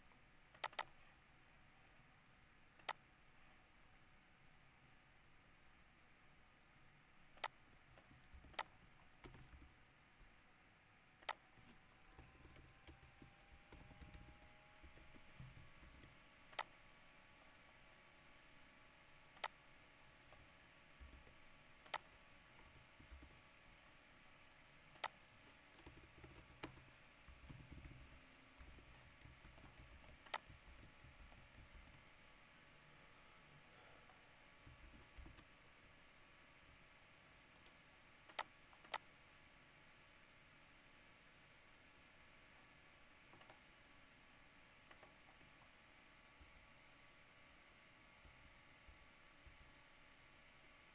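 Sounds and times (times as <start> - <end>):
faint steady hum: 0.0 - 50.9
mouse and keyboard clicks: 0.5 - 1.0, 2.8 - 3.0, 7.4 - 9.8, 11.2 - 16.8, 19.3 - 19.6, 20.3 - 23.4, 24.9 - 32.0, 34.6 - 35.5, 37.6 - 39.1.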